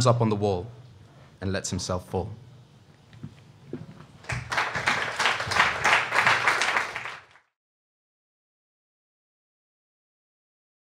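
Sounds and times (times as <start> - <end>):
audience applauding: 4.2 - 7.5.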